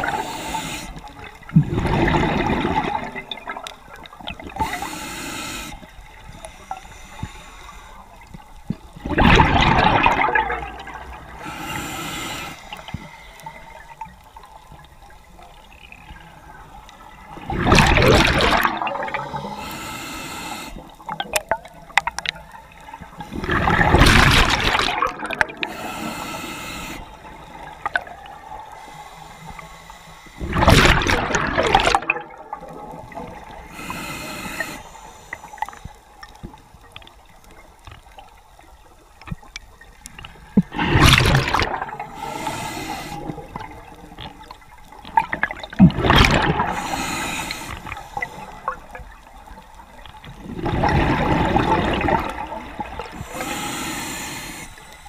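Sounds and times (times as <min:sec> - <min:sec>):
inhalation hiss through regulator: 0:00.0 - 0:01.3, 0:04.6 - 0:08.2, 0:11.4 - 0:14.0, 0:19.2 - 0:21.0, 0:25.6 - 0:27.8, 0:28.6 - 0:30.6, 0:33.4 - 0:36.2, 0:42.0 - 0:43.7, 0:46.7 - 0:48.9, 0:53.1 - 0:55.0
exhaled bubbles rushing: 0:01.5 - 0:04.6, 0:09.0 - 0:11.4, 0:17.4 - 0:19.2, 0:23.3 - 0:25.7, 0:30.4 - 0:33.6, 0:40.5 - 0:42.2, 0:45.2 - 0:46.9, 0:50.4 - 0:53.2.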